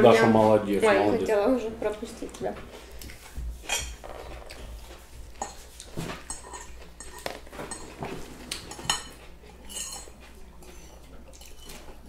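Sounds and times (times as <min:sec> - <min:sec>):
spoon clinking and scraping on plate: 0:03.6 - 0:04.6, 0:05.4 - 0:11.9.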